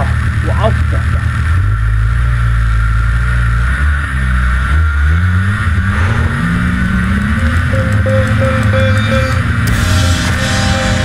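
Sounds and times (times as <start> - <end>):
snowmobile engine revving: 3.6 - 11.0.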